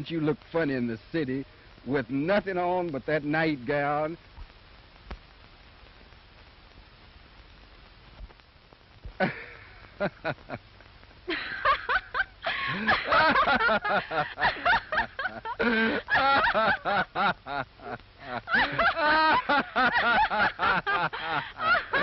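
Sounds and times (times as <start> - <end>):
film soundtrack hiss: 0.0 - 22.0
loud laughing: 9.2 - 10.6, 11.3 - 22.0.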